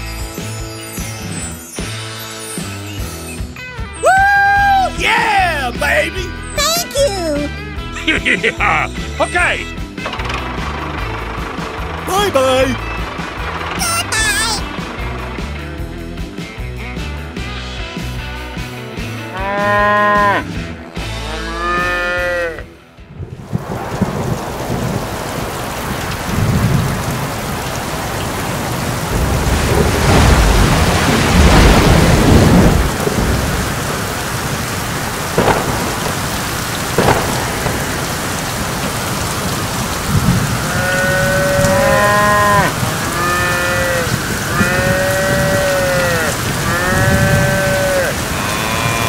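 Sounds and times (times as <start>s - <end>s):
heavy rain: 4.0s - 16.6s, 21.6s - 49.0s
cattle mooing: 19.2s - 22.7s, 40.5s - 49.0s
thunder rumble: 23.1s - 49.0s
thunder cracks: 23.2s - 49.0s.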